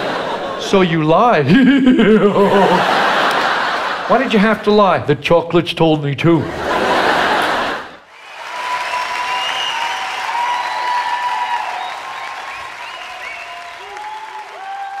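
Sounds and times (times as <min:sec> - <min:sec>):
audience applauding: 0:02.6 - 0:04.0, 0:07.0 - 0:15.0.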